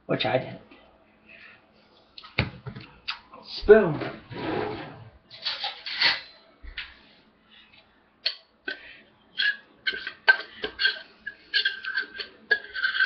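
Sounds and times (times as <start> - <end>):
metal spoon scraping tin can: 9.4 - 13.0.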